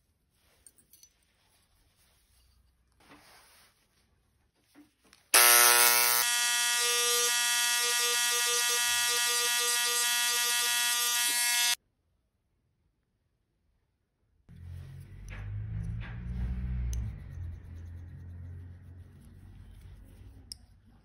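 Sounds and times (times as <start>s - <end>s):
electric engraving pen buzzing: 5.3s - 11.8s.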